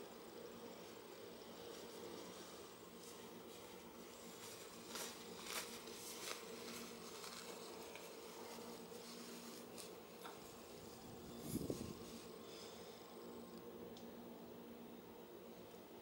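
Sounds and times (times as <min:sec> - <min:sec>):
faint buzzing hum: 0:00.0 - 0:16.0
fabric rustling: 0:01.6 - 0:12.4.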